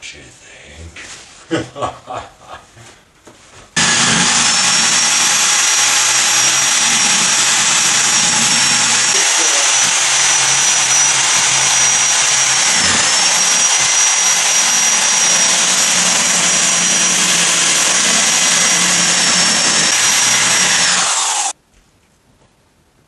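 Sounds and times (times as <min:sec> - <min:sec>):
power drill whining: 0:03.8 - 0:21.6.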